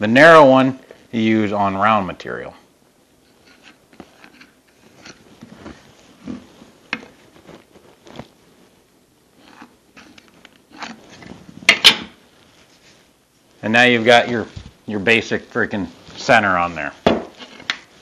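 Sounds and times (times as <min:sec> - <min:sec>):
log knocking on wooden workbench: 0:17.0 - 0:17.3.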